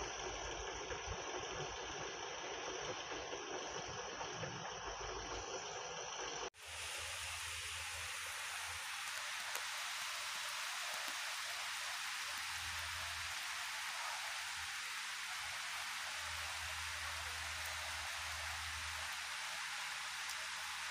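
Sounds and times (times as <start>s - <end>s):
steady rain falling: 6.6s - 20.9s.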